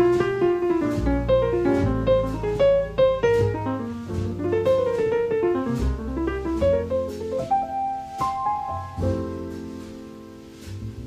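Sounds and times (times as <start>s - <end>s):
low bass notes: 0.0s - 11.0s.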